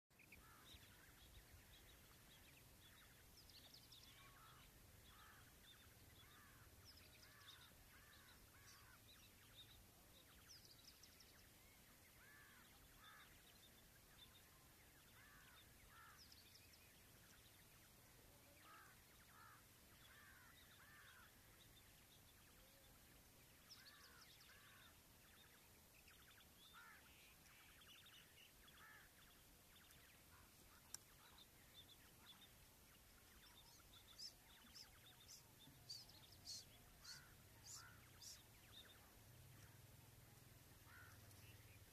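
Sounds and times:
faint background hiss: 0.1s - 41.9s
quails calling: 11.4s - 41.9s.

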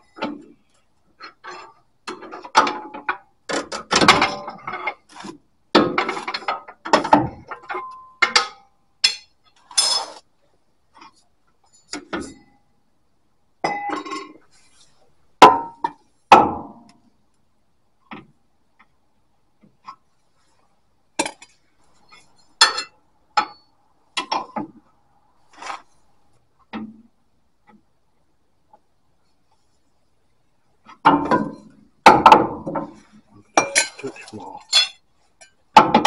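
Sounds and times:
metal clinks knocks and scrapes: 11.0s - 12.6s.

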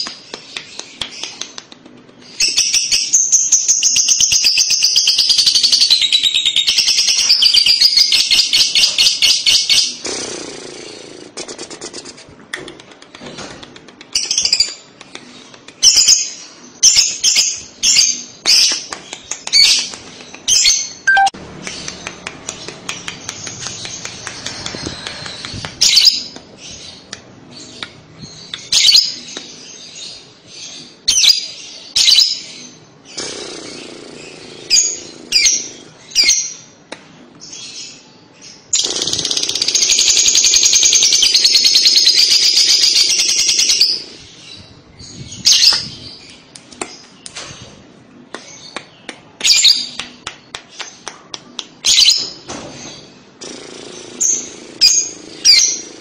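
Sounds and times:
bird chirping: 15.4s - 36.8s
bird chattering trill: 21.0s - 21.4s.

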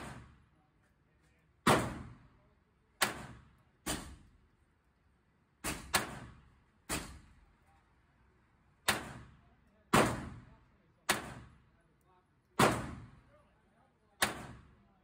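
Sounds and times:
pistol shots with echo: 3.0s - 4.2s, 9.9s - 10.4s, 11.1s - 11.5s, 12.6s - 13.2s, 14.2s - 14.7s.

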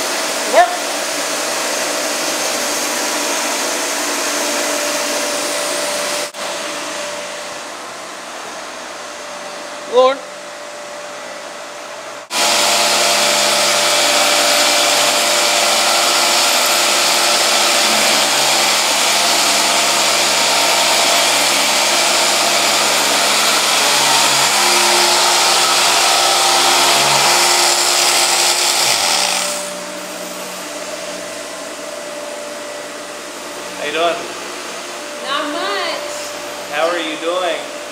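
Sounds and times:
floor sander motor sanding: 0.0s - 37.9s
steady machine hum: 0.0s - 37.9s.

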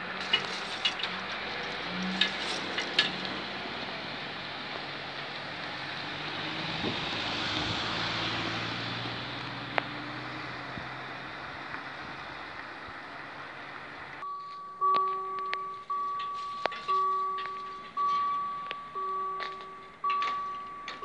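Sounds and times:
vehicle rumble: 0.0s - 21.0s
level crossing warning bell: 14.2s - 21.0s.

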